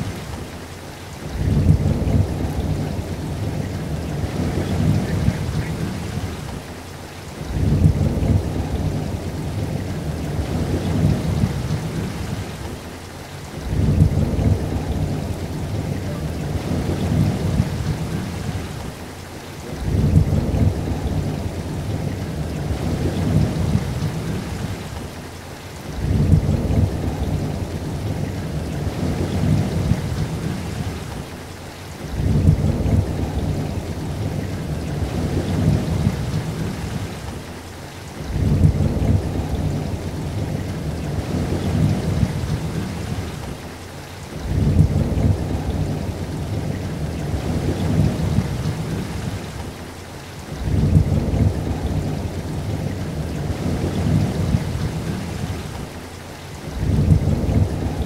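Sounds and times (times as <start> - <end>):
rain falling: 0.0 - 58.0.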